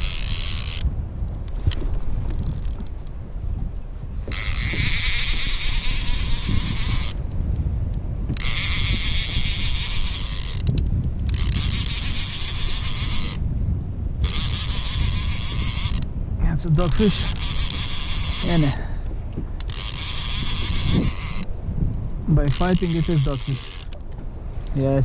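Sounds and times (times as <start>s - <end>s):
fishing reel winding: 0.0s - 0.9s, 1.6s - 3.0s, 4.3s - 7.2s, 8.3s - 13.4s, 14.2s - 16.1s, 16.7s - 18.9s, 19.6s - 21.5s, 22.4s - 24.0s.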